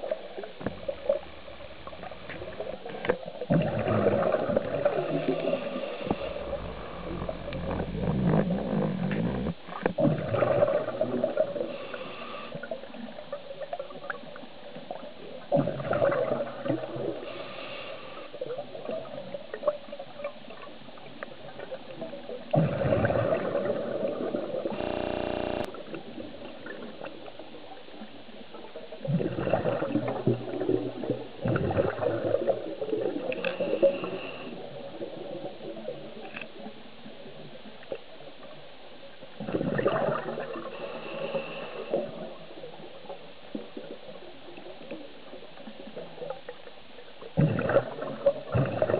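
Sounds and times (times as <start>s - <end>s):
exhaled bubbles underwater: 0.0s - 17.6s, 18.3s - 38.6s, 39.3s - 48.9s
short buzzing tone: 24.7s - 25.7s.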